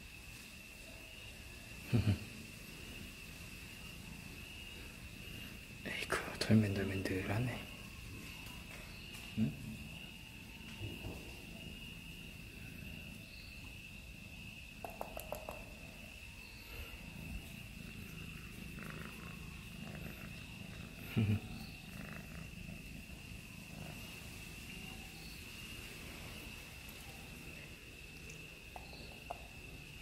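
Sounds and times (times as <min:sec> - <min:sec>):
cat purring loudly: 0:17.0 - 0:25.2.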